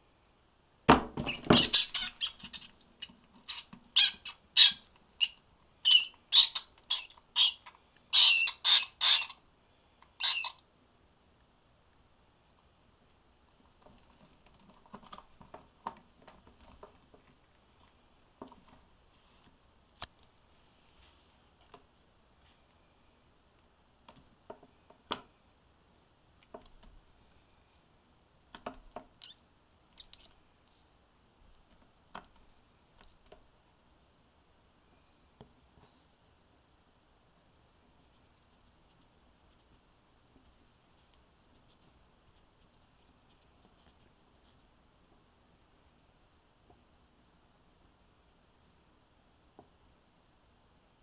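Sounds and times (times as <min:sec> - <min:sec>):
rat squeaking: 0:01.2 - 0:09.4, 0:10.2 - 0:10.7, 0:29.1 - 0:30.4
faint clicks and taps: 0:13.4 - 0:20.5, 0:31.5 - 0:33.5.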